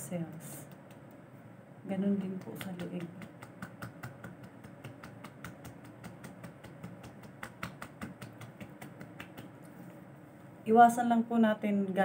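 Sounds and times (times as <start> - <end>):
fingertips tapping skin: 0.6 - 1.2, 2.0 - 9.8.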